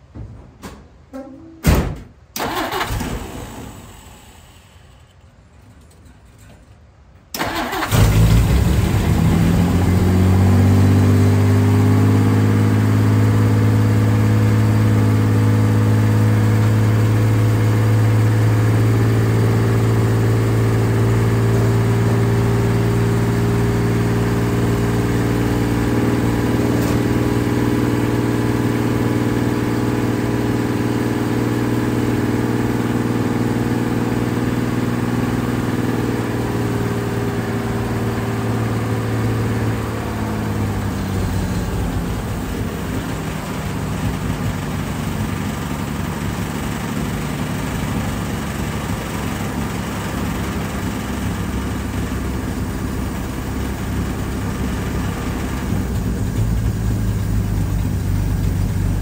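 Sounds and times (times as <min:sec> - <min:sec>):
car engine starting and idling: 0:02.3 - 0:06.0, 0:07.2 - 0:59.0.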